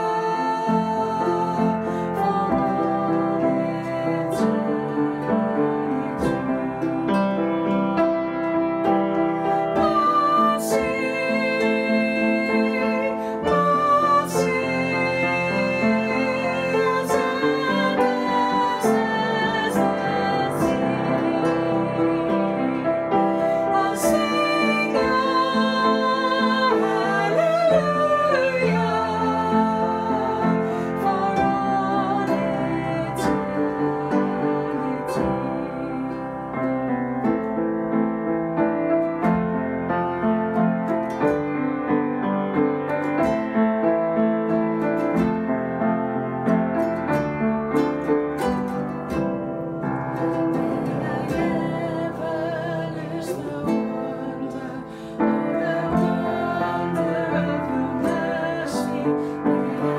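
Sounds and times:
man and woman singing: 0.0s - 8.4s, 9.3s - 37.4s, 50.2s - 59.9s
strummed ukulele: 0.0s - 59.9s
upright piano: 0.0s - 59.9s.

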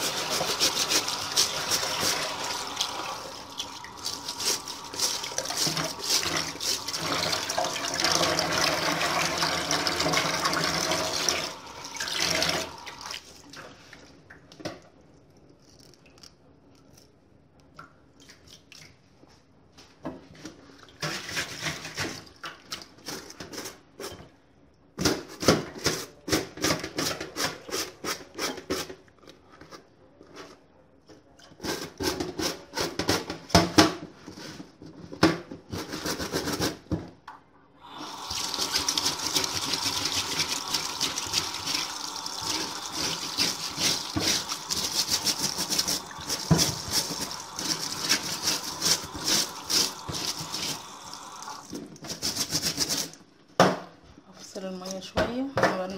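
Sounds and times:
brush scrubbing wet fabric: 0.0s - 7.8s, 38.2s - 53.2s
tap water splashing: 38.2s - 52.2s.

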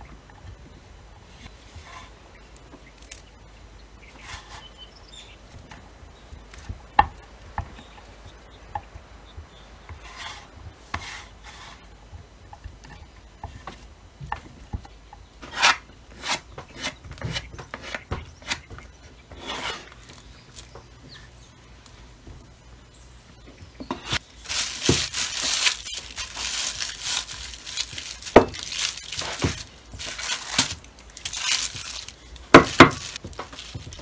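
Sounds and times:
scraper scraping on wooden board: 19.3s - 19.9s.

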